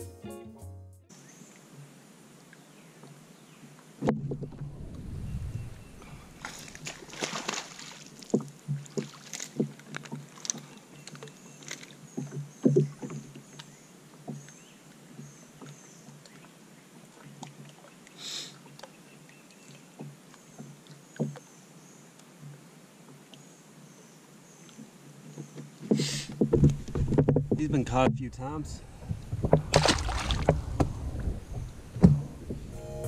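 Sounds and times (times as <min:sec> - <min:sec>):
fish splashing: 0:05.8 - 0:10.7, 0:28.8 - 0:32.6
short splash-like hiss: 0:06.4 - 0:08.1, 0:29.6 - 0:30.8.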